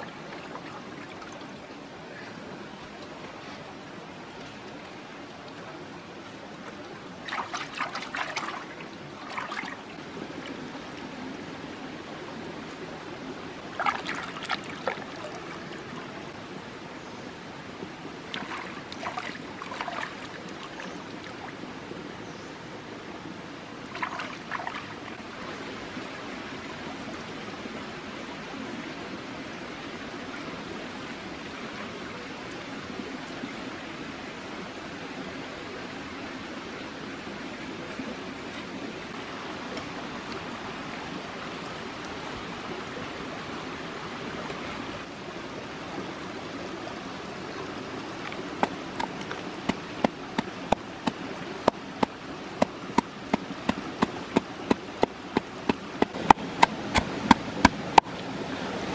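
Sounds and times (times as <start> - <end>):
stream trickling over stones: 0.0 - 29.2, 37.0 - 58.9
splashing in water: 7.2 - 9.9, 13.7 - 15.6, 18.3 - 21.0, 23.9 - 25.2, 48.2 - 58.3.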